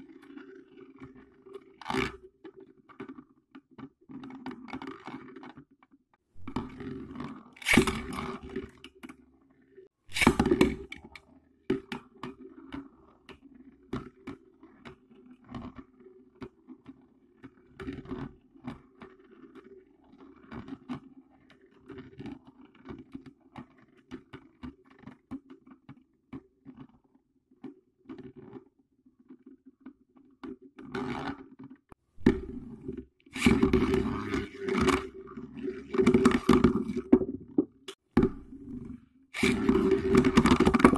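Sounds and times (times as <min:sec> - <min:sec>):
spinning top rattling around bowl: 0:39.4 - 0:40.9
spinning tops whirring: 0:39.4 - 0:40.9.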